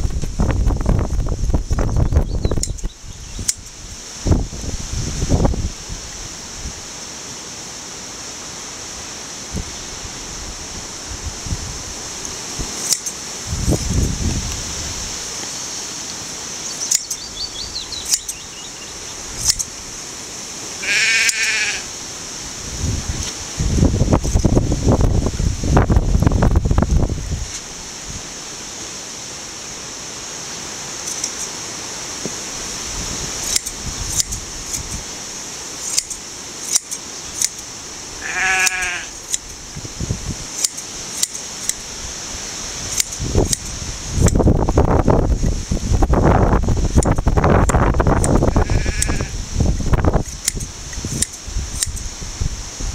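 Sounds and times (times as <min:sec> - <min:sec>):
hand shears snipping: 0:12.2 - 0:14.1, 0:16.7 - 0:17.3, 0:18.0 - 0:18.4, 0:19.4 - 0:19.8, 0:31.0 - 0:31.6, 0:33.4 - 0:35.1, 0:35.8 - 0:37.7, 0:38.6 - 0:39.6, 0:40.5 - 0:41.9, 0:42.8 - 0:44.4, 0:46.9 - 0:49.2, 0:49.8 - 0:52.1
sheep bleating: 0:20.8 - 0:21.9, 0:38.2 - 0:39.1, 0:48.4 - 0:49.4.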